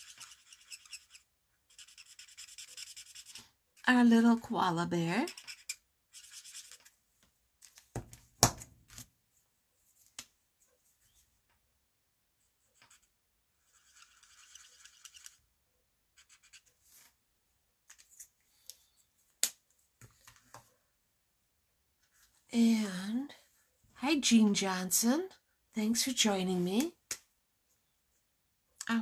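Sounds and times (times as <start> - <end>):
marker tip scratching on cardstock: 0.0 - 3.4, 5.1 - 6.9, 12.8 - 15.4
markers clicking and knocking on desk: 0.0 - 3.6, 5.2 - 7.0, 12.7 - 15.5.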